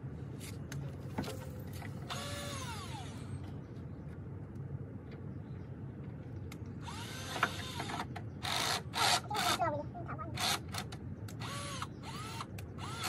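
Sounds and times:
power drill whine: 2.1s - 3.3s, 6.8s - 9.6s, 11.4s - 13.0s.

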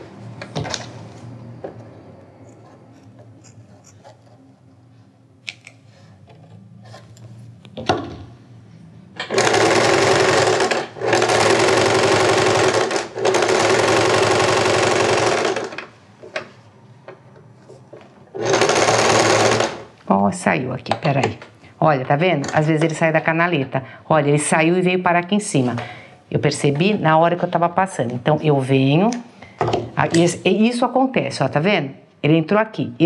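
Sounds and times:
sewing machine stitching: 9.2s - 15.9s, 18.3s - 19.9s.

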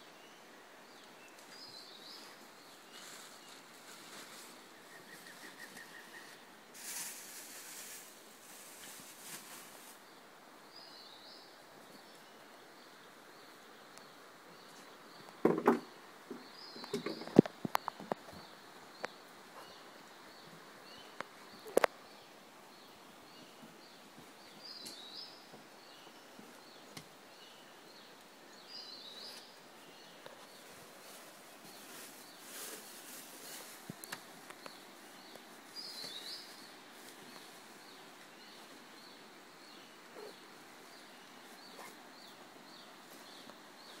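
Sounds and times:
bird calls: 1.0s - 7.1s, 13.4s - 44.0s.

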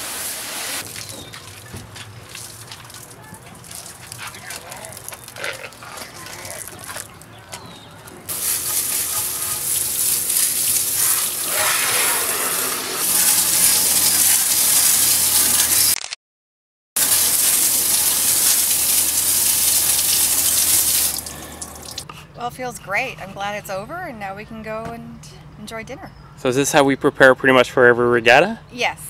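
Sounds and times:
pressure washer spraying water: 0.0s - 1.0s, 8.3s - 16.0s, 17.0s - 22.0s.

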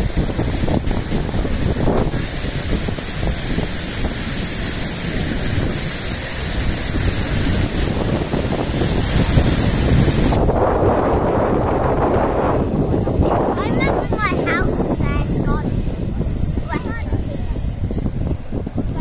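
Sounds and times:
rush of fast water: 0.0s - 19.0s
wind rumbling on microphone: 0.0s - 19.0s.

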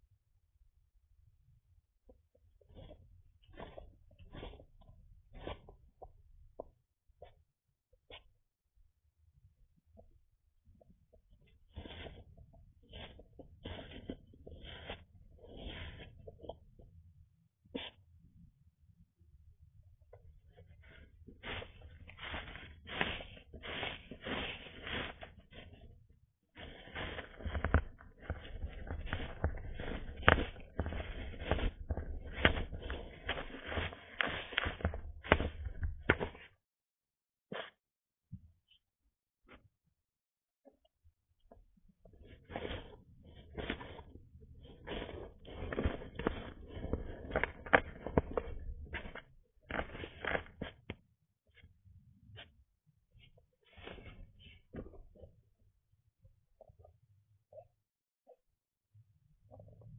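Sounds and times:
straw rustling and crackling: 11.8s - 12.2s, 12.9s - 16.3s, 20.8s - 26.0s, 26.6s - 36.5s, 42.2s - 50.9s.

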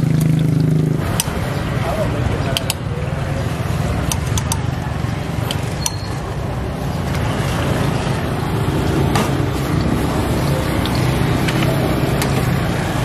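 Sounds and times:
passing street traffic: 0.0s - 13.0s
gas burner rumble: 1.0s - 13.0s
sharp clicks: 2.5s - 2.9s, 4.0s - 4.8s.

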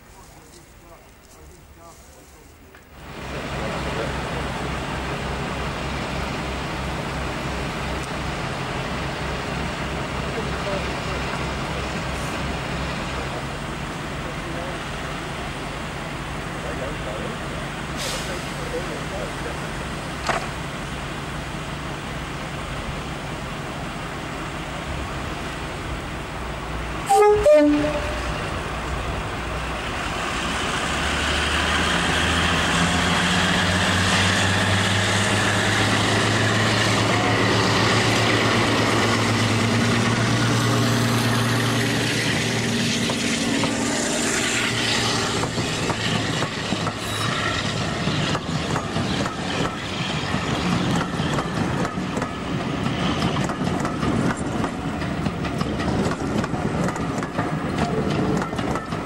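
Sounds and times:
diesel locomotive engine: 0.0s - 59.0s
train wheels clicking over rail joints: 20.0s - 20.7s, 29.8s - 59.0s.

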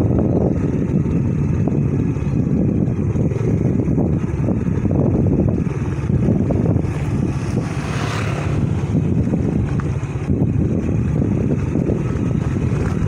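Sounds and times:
motorbike engine: 0.0s - 13.0s
road noise: 0.0s - 13.0s
wind rumbling on microphone: 0.0s - 13.0s.

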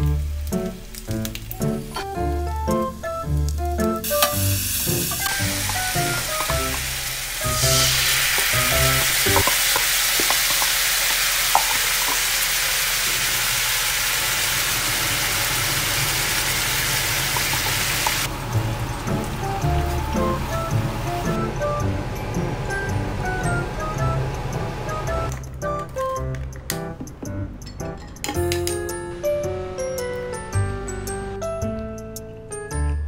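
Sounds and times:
light background music: 0.0s - 9.6s, 18.3s - 33.0s
food sizzling in frying pan: 0.0s - 21.5s.

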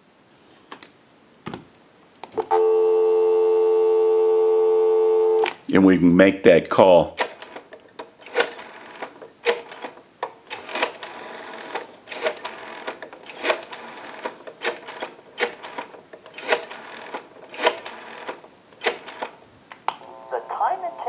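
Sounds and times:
rotary telephone dial clicking: 8.2s - 19.3s.

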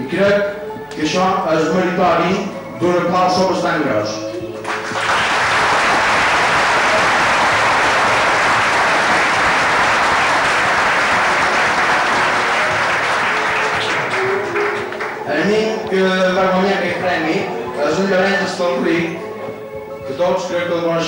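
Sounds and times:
audience applauding: 4.6s - 17.8s.

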